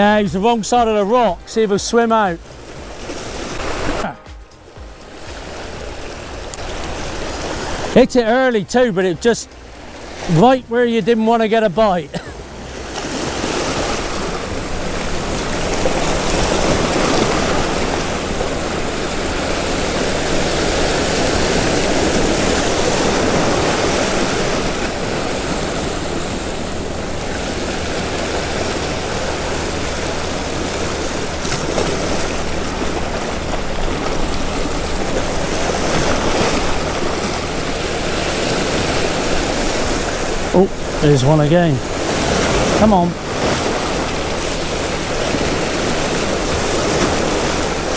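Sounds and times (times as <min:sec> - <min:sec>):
surf breaking over rocks: 0:00.0 - 0:47.9.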